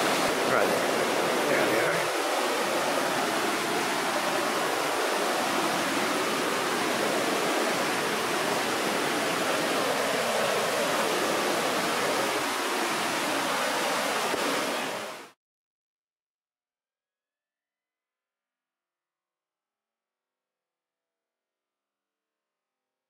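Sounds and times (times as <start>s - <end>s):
whitewater rapids rushing: 0.0s - 15.3s.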